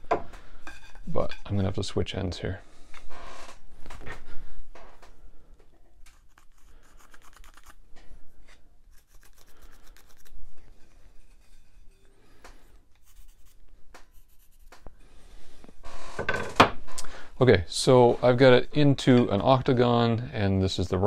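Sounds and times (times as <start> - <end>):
pencil scratching on wood: 6.1 - 7.8, 8.9 - 10.4, 13.0 - 14.9.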